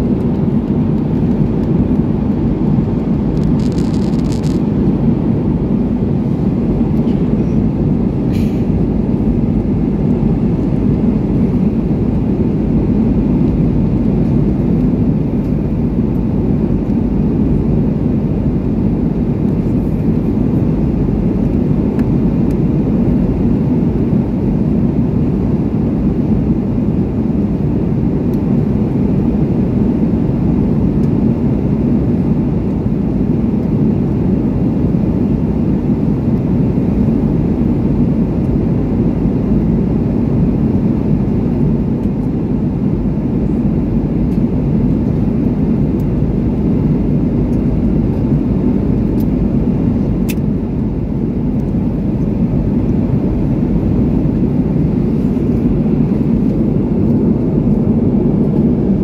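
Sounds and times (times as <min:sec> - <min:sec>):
jet airliner cabin noise: 0:00.0 - 0:59.0.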